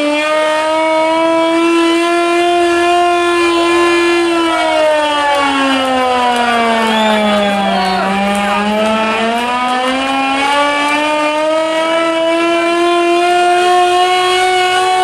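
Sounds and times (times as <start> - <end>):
hand-cranked siren wailing: 0.0 - 15.0.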